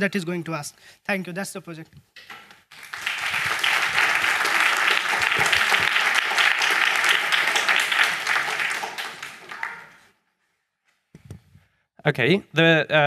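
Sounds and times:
audience applauding: 2.7 - 10.1.

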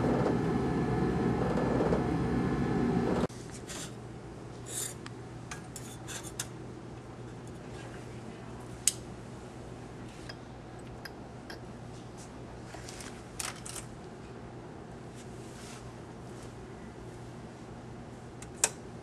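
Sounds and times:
low hum: 0.0 - 3.3.

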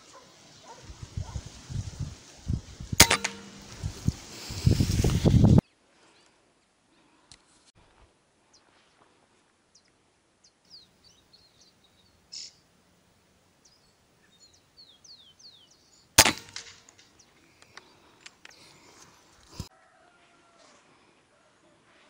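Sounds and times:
rifle shot: 3.0 - 3.7, 16.2 - 16.9
small birds chirping: 9.7 - 12.7, 13.5 - 19.7.

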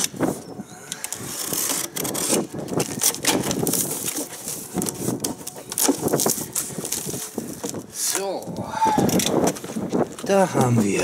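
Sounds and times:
box cutter slicing packing tape: 1.2 - 7.2
cardboard flaps pulled open: 1.2 - 8.2.

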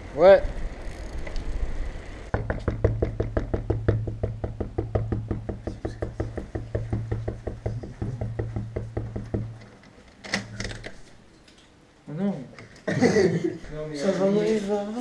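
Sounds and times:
rapid knocking on a door: 2.3 - 9.6.

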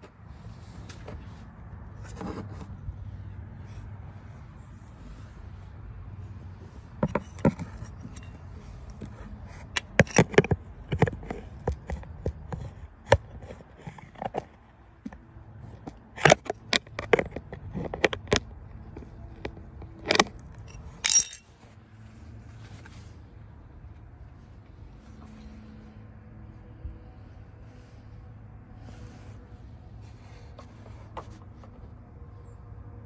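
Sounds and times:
metal hand tools clinking: 20.6 - 21.5.

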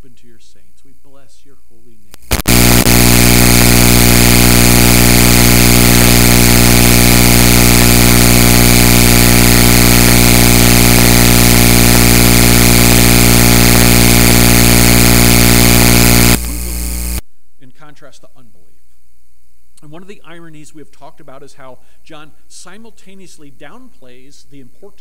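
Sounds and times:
loud electrical buzz: 2.2 - 17.2.

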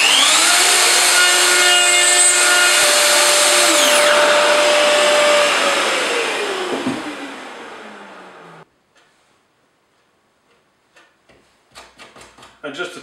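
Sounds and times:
plunge router cutting: 0.0 - 8.6
router spinning down whine: 0.0 - 8.6.

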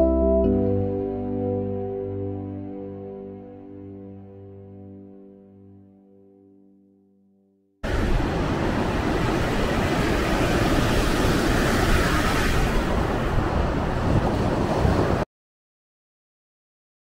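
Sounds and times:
wind buffeting microphone: 7.8 - 15.2
sea waves breaking: 7.8 - 15.3.

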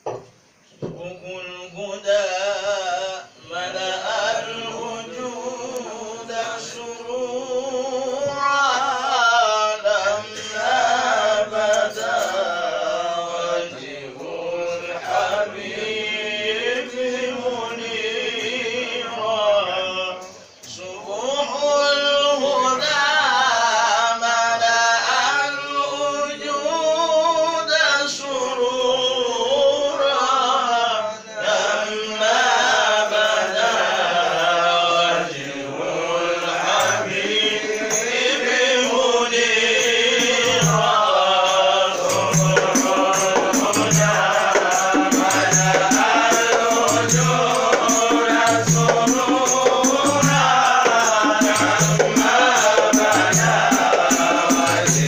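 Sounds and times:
men chanting together: 0.9 - 55.0
frame drums beating: 40.2 - 41.1, 42.0 - 55.0.

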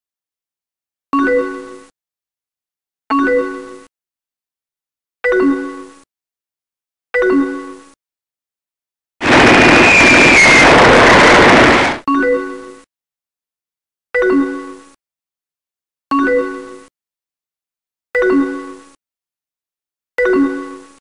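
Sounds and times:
explosion sound effect: 9.2 - 12.0.

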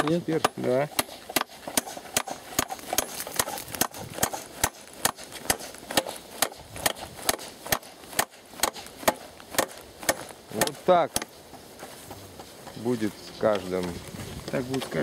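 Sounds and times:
hammer striking nail into wood: 0.0 - 11.3.

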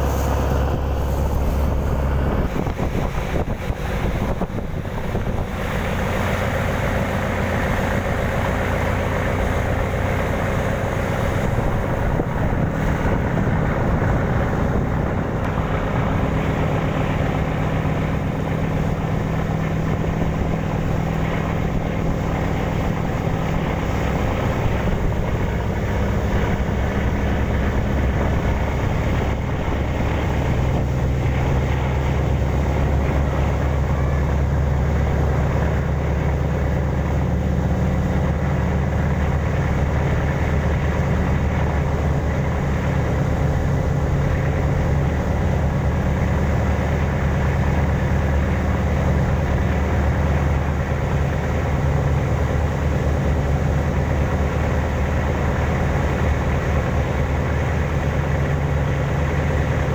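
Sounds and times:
ship engine drone: 0.0 - 59.9
water rushing along hull: 0.0 - 59.9.

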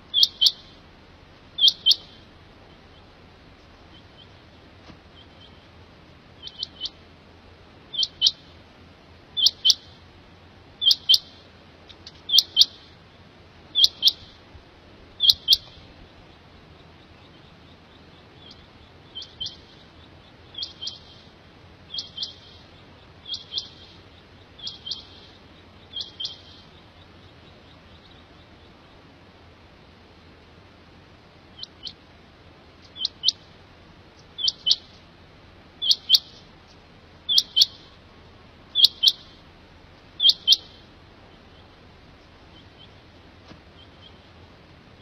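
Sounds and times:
quail calling: 0.0 - 0.8, 1.5 - 3.2, 3.8 - 7.0, 7.9 - 8.6, 9.4 - 10.0, 10.8 - 11.4, 12.1 - 14.4, 15.1 - 29.1, 31.5 - 32.1, 32.8 - 35.0, 35.8 - 38.0, 38.7 - 44.4.

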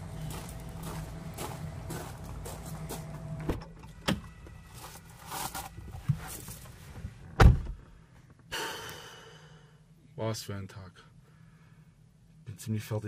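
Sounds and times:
knocks and rustling in car seat: 6.0 - 7.8
car door thump: 7.4 - 7.8.

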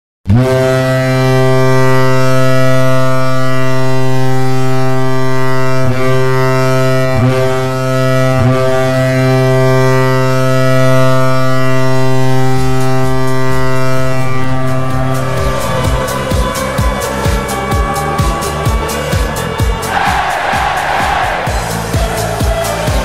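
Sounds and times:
hockey goal horn blast: 0.3 - 15.8, 19.8 - 22.5.

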